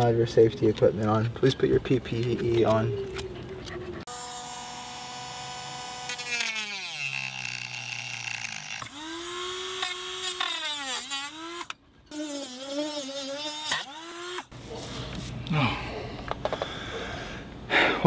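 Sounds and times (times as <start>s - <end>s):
rotary tool motor whining: 3.0s - 14.5s.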